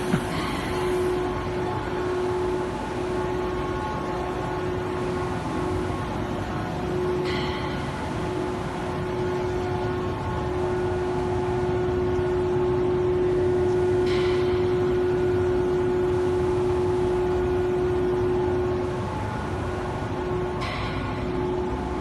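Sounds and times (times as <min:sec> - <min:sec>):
machine hum with constant tone: 0:00.0 - 0:22.0.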